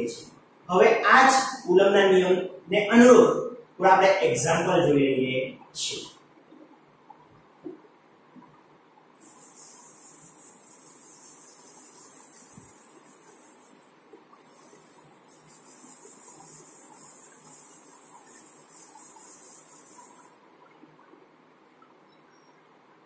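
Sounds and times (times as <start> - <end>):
duster wiping chalkboard: 9.2 - 20.4.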